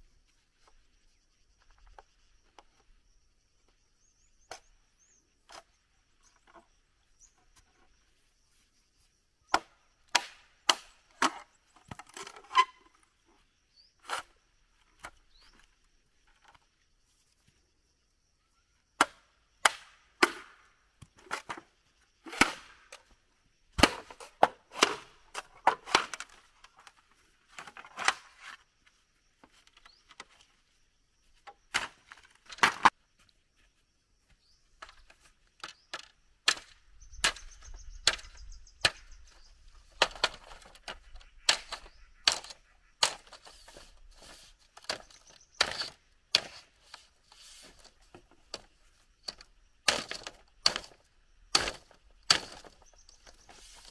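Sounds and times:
machete chopping bamboo: 0:09.5 - 0:11.4, 0:19.0 - 0:20.6, 0:22.2 - 0:23.0, 0:23.8 - 0:26.3, 0:36.5 - 0:39.0, 0:44.8 - 0:46.7, 0:49.3 - 0:53.4.

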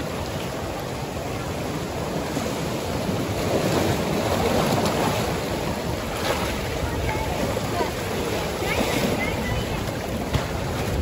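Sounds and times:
sea surf washing around rocks: 0:00.0 - 0:11.0.

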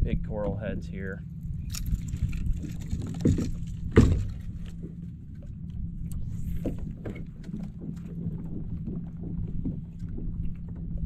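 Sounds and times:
steady low rumble: 0:00.0 - 0:11.0
water lapping against hull: 0:00.0 - 0:11.0
knock on kayak hull: 0:03.2 - 0:04.4.

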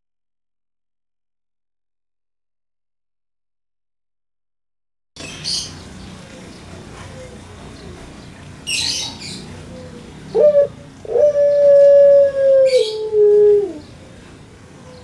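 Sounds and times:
dove cooing: 0:09.7 - 0:13.9.

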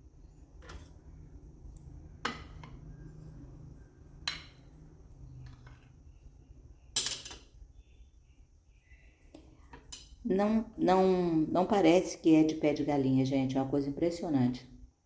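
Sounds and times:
metal spoon tapping glass plate: 0:04.2 - 0:04.6.

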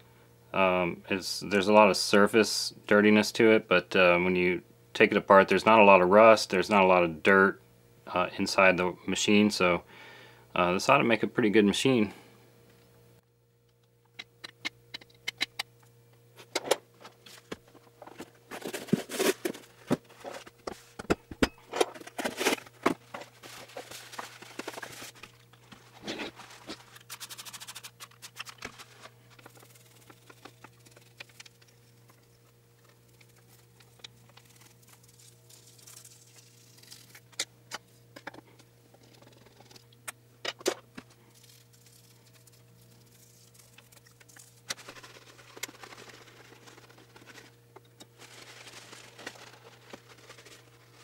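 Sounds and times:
low steady hum: 0:00.0 - 0:51.0
paper towels rustling: 0:22.3 - 0:31.1, 0:48.1 - 0:51.0.

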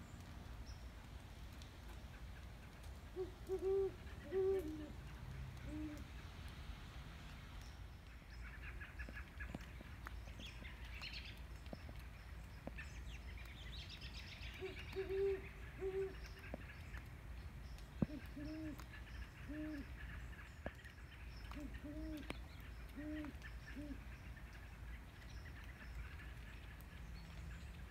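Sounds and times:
owls hooting: 0:03.2 - 0:04.9.

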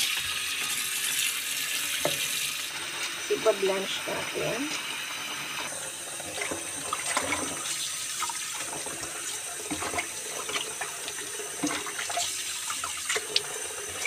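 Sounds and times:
tap water running into basin: 0:00.0 - 0:14.0.

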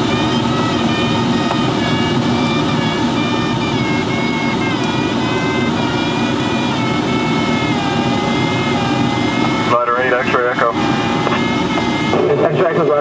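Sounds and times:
variometer continuous tone: 0:00.0 - 0:13.0.

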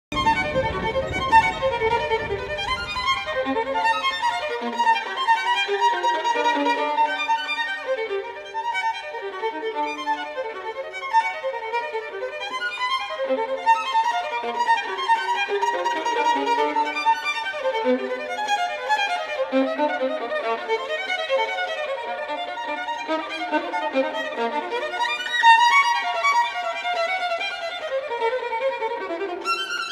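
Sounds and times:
low rumble: 0:00.1 - 0:04.5
violin melody: 0:00.1 - 0:29.9.

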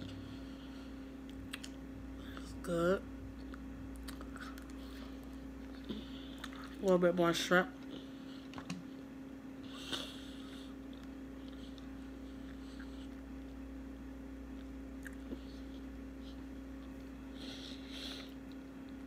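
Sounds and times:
low electrical hum: 0:00.0 - 0:19.0
mouth-closed chewing: 0:03.4 - 0:06.8, 0:09.7 - 0:13.5.

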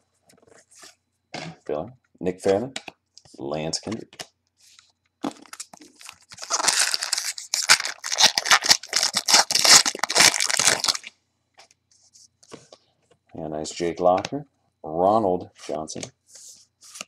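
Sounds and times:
foil wrapper tearing and crinkling: 0:05.3 - 0:11.1.

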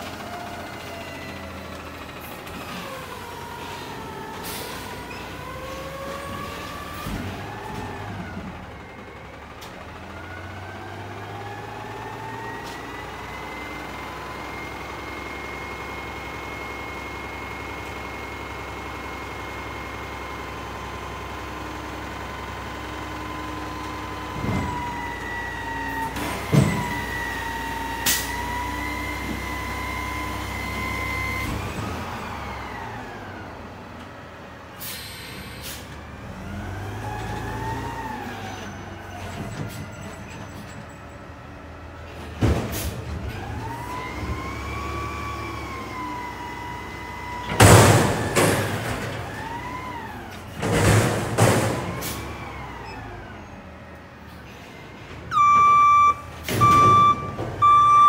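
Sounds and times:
dumpster clatter: 0:00.0 - 0:12.9, 0:22.5 - 0:29.7, 0:36.3 - 0:44.9, 0:47.0 - 0:52.8, 0:54.4 - 0:58.0
garbage truck engine whine: 0:00.0 - 0:58.0.

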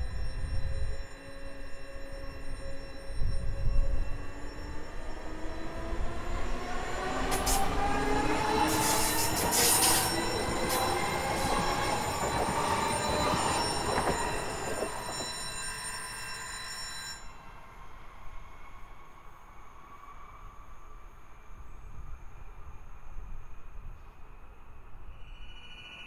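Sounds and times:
electric train motors whining: 0:00.1 - 0:16.6
wheel-on-rail noise: 0:04.3 - 0:16.6.

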